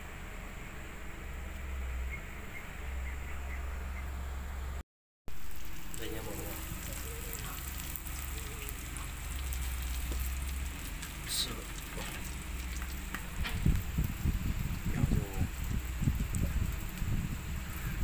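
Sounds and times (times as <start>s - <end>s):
food sizzling in a pan: 5.3s - 18.0s
low thumps and crackles: 5.3s - 18.0s.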